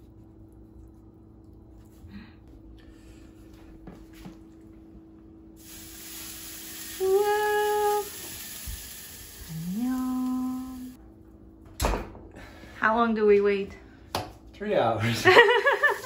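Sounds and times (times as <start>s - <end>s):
person humming: 7.0s - 8.1s, 9.5s - 10.9s.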